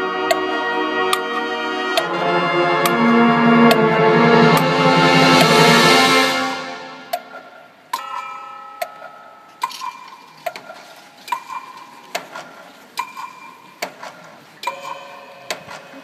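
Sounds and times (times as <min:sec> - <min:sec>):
clock-like tick-tock: 0:11.3 - 0:16.0.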